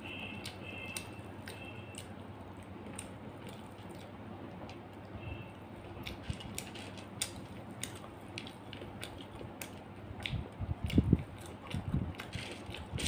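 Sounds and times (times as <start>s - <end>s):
wet clicks of fingers eating: 0.3s - 4.8s, 7.2s - 12.3s.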